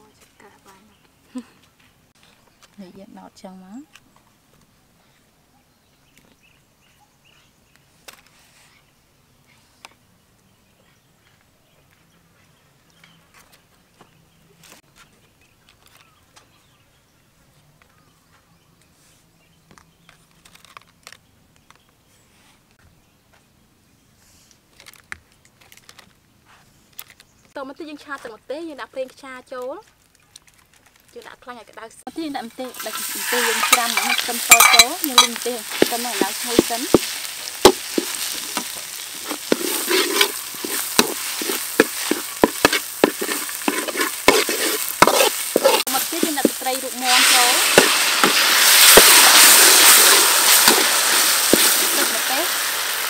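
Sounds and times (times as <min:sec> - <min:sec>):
oil sizzling: 0:32.5 - 0:53.0
metal spatula scraping wok: 0:32.7 - 0:52.6.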